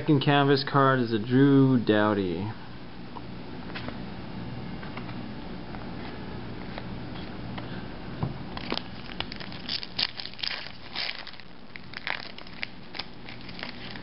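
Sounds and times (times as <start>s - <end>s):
foil wrapper crinkling and tearing: 8.6s - 14.0s.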